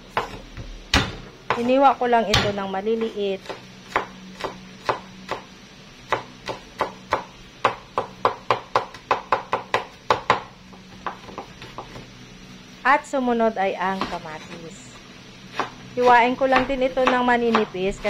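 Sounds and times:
knife chopping on wooden board: 0.1s - 5.5s, 6.1s - 12.1s, 15.5s - 18.0s.

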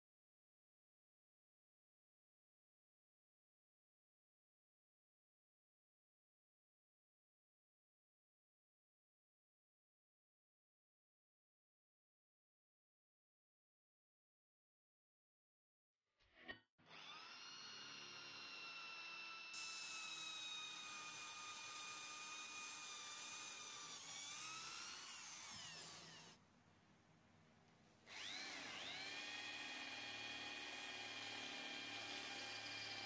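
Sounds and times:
electric drill whining through steel: 16.8s - 26.4s, 28.0s - 33.0s.

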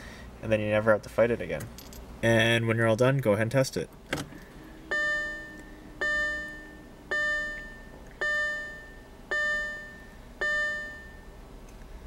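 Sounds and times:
dashboard warning chime dinging: 4.8s - 11.4s.

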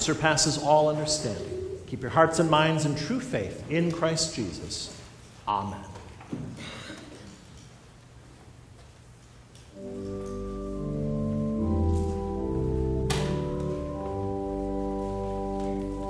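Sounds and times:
church organ chords: 0.0s - 3.3s, 9.8s - 16.0s.

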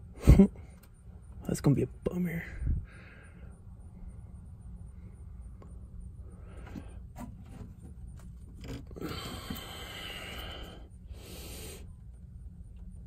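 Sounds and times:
low steady rumble: 0.0s - 13.0s
scraping and rustling: 6.6s - 9.2s.

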